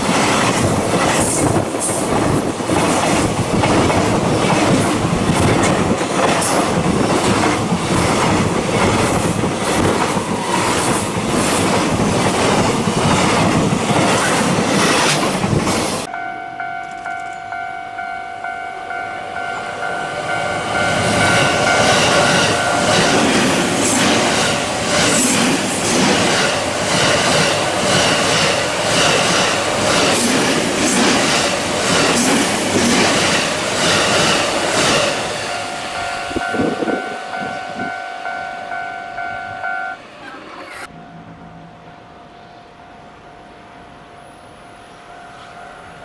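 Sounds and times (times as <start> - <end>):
train wheels clattering over rail joints: 0.0 - 16.1, 21.6 - 35.4
steady high ringing tone: 16.0 - 23.4, 35.4 - 46.0.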